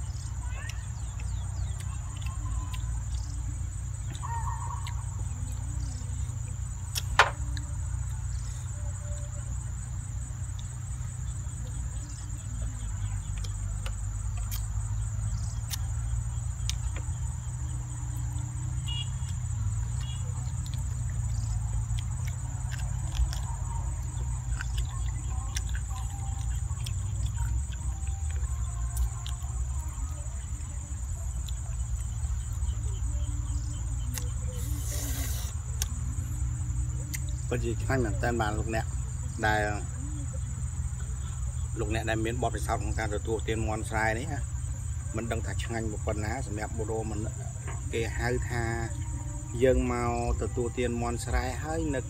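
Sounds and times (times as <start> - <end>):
insect chorus: 0.0 - 52.0
chicken torn and chewed: 19.9 - 30.0.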